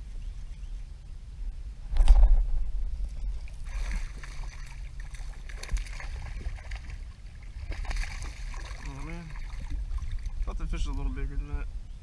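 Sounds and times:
low rumble: 0.0 - 12.0
water splashing against boat: 3.2 - 11.1.

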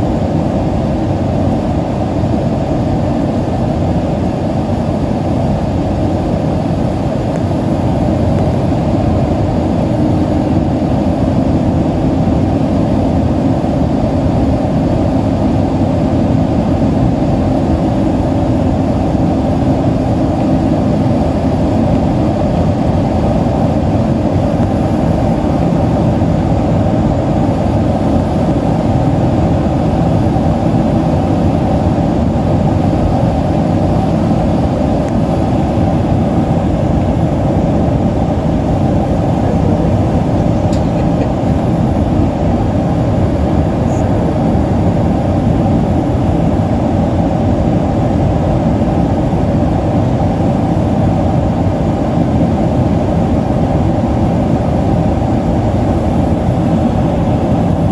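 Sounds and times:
jet engine cabin rumble: 0.0 - 57.9.

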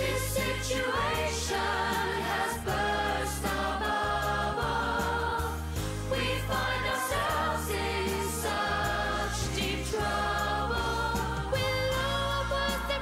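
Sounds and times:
backing track: 0.0 - 13.0
steady bass line: 0.0 - 13.0
voices singing pop song: 0.0 - 13.0.

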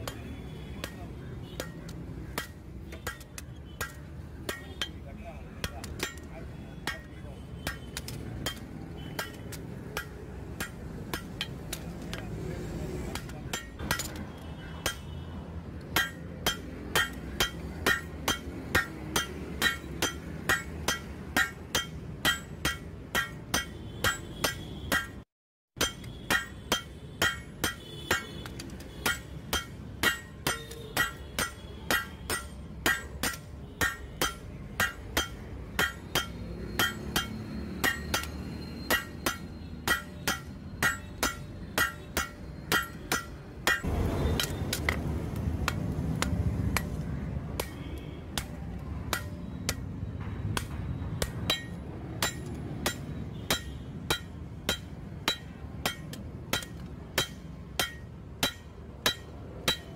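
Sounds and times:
hammer ringing on anvil: 16.0 - 25.2, 25.8 - 28.4, 29.0 - 44.6, 49.1 - 59.9.

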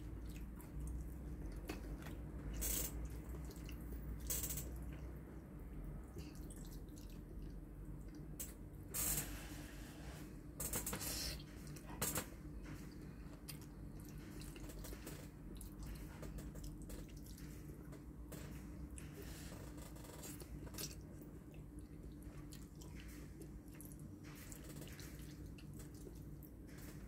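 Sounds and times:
spaghetti slurping and chewing: 0.0 - 5.2, 13.0 - 18.0, 18.9 - 27.0
faint steady hum: 0.0 - 27.0.

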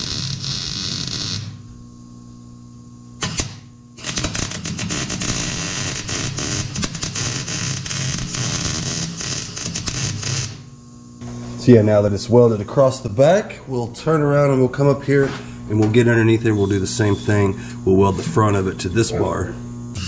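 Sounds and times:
short welder zap: 0.0 - 1.7, 3.2 - 10.7
welder arc crackling: 0.0 - 20.0.

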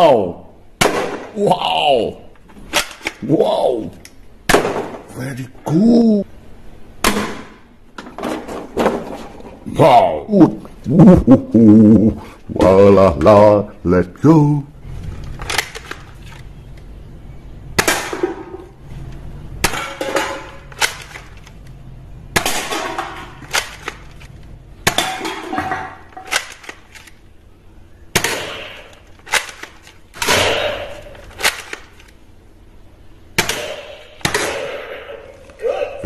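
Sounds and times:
cans and bottles clattering: 24.9 - 26.5.

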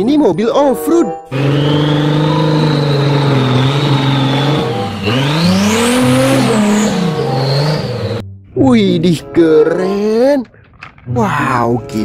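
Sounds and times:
engine revving under load: 1.3 - 8.2.

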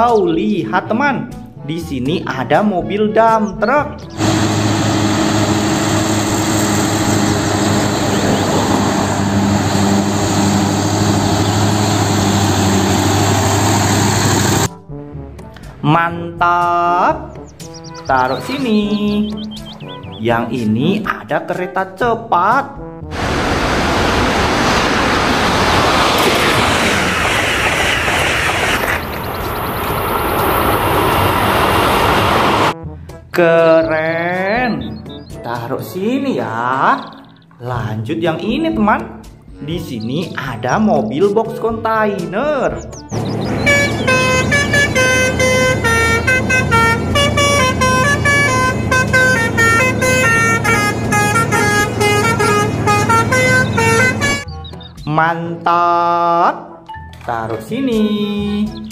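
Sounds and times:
engine drone: 4.0 - 14.8, 23.1 - 32.8, 43.0 - 54.5
high-speed train passing: 4.2 - 14.7, 23.2 - 32.8, 43.2 - 54.4
musical vehicle horn: 43.2 - 54.8.

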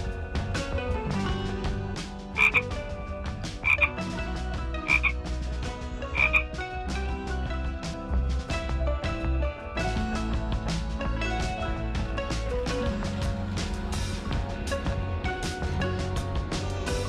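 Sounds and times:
background music: 0.0 - 17.0
frog croaking: 2.4 - 2.8, 3.6 - 4.0, 4.8 - 5.2, 6.0 - 6.6.

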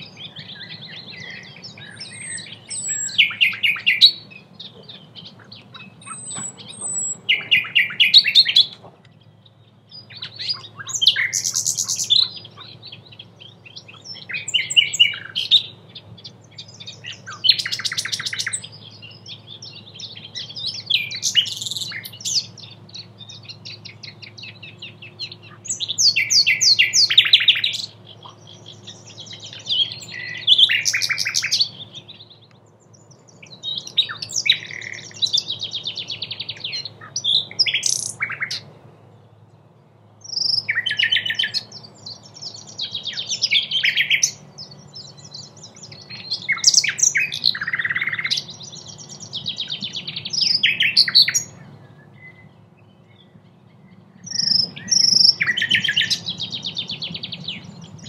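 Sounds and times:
nightingale singing: 0.0 - 58.0.

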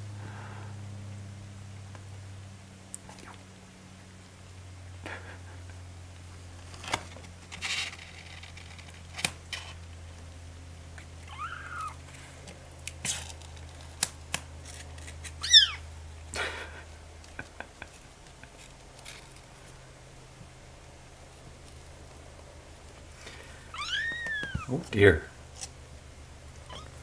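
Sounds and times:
kittens scratching and rustling: 6.1 - 16.0, 16.8 - 27.0
kitten mewing: 11.3 - 12.0, 15.4 - 15.8, 23.7 - 24.8, 26.7 - 27.0.

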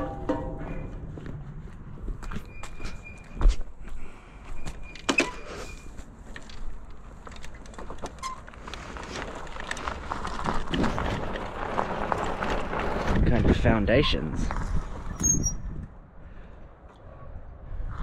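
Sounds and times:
bike tyres crunching on gravel: 5.7 - 15.2.

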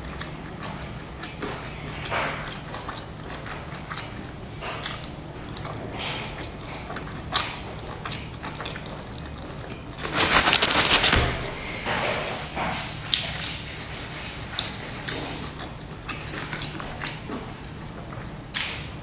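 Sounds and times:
rapid crackling: 10.0 - 12.0.

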